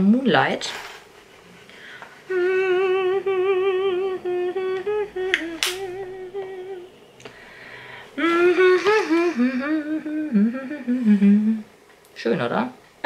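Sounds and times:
woman humming: 2.3s - 7.0s, 8.2s - 11.8s.

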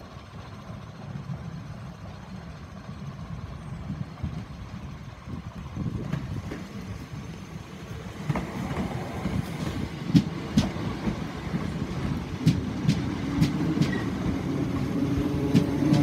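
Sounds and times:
passing train rumble: 0.0s - 16.0s
wheel clacks over rail joints: 7.9s - 16.0s.

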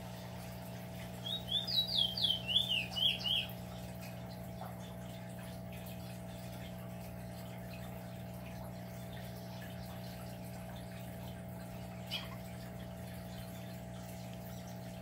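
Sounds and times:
bird chirping: 1.2s - 3.5s.

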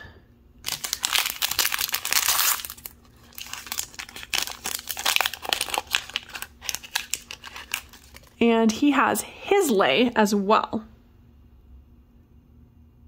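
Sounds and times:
wrapper bag crinkling: 0.6s - 8.4s.

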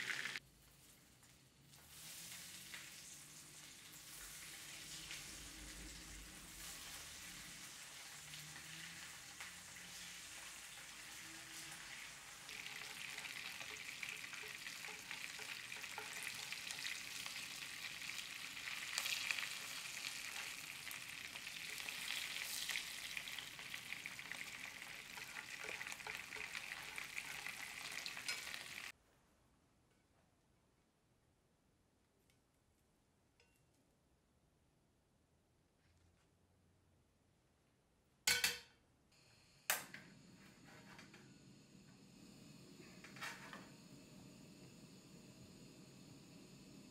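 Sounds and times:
meatballs sizzling in frying pan: 0.0s - 29.0s.

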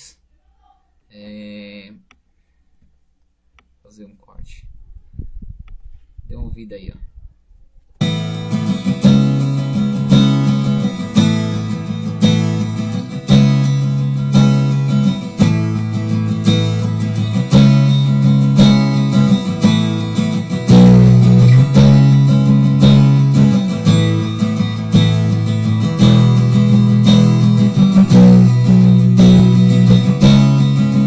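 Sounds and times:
acoustic guitar chords: 8.0s - 31.0s.

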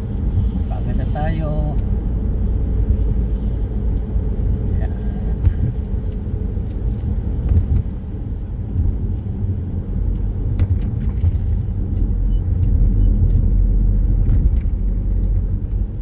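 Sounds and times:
car engine and tyres rumbling: 0.0s - 16.0s.

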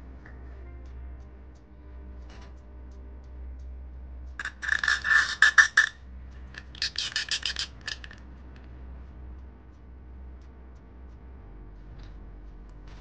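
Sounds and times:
plastic figure scraping onto base: 4.4s - 5.9s, 6.6s - 8.2s.

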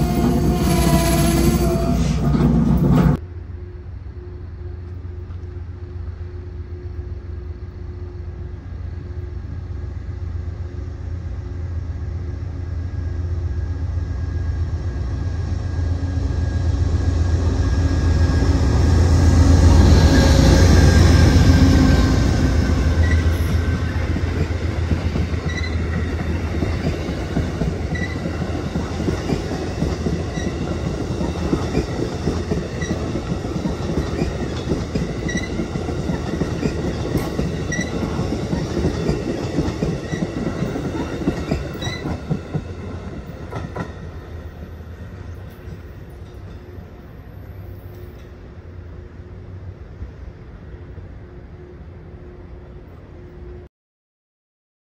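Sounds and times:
train wheels rumbling: 0.0s - 50.1s
clickety-clack over rail joints: 23.0s - 47.1s.

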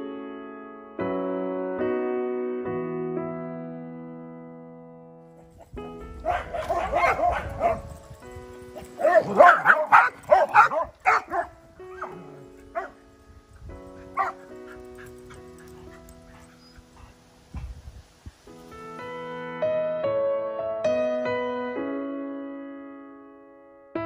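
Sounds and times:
soft piano music: 0.0s - 24.0s
dogs barking: 5.4s - 13.0s, 13.9s - 17.2s.

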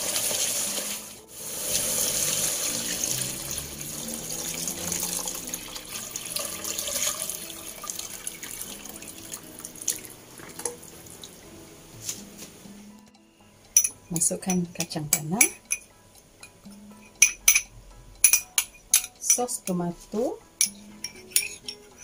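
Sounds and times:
stock pouring into pot: 0.2s - 11.0s.

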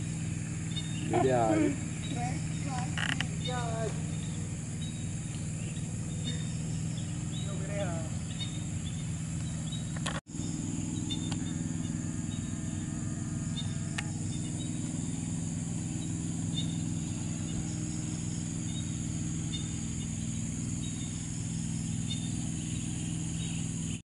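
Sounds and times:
high insect drone: 0.0s - 24.0s
low buzzing hum: 0.0s - 24.0s.

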